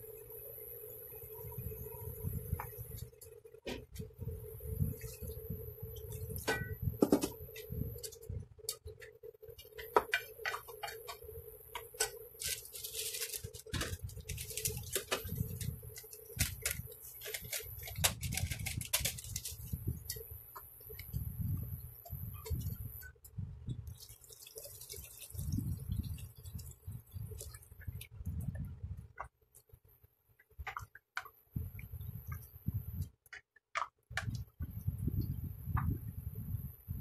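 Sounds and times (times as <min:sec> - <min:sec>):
steady hum: 0:00.0 - 0:33.2.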